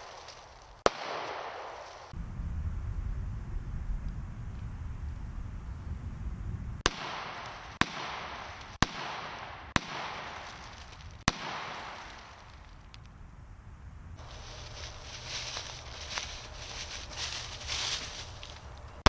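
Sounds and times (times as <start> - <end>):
pistol shots echoing: 0.8 - 2.0, 6.9 - 10.7, 11.3 - 12.4.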